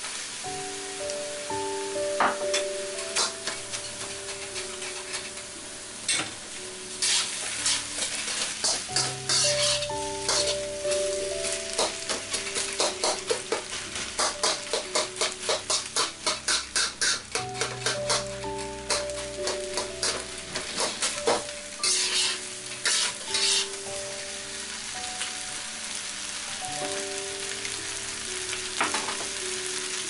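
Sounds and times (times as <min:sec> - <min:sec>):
rice sizzling in wok: 0:00.0 - 0:30.0
metal spatula scraping wok: 0:02.5 - 0:06.2, 0:06.9 - 0:23.9.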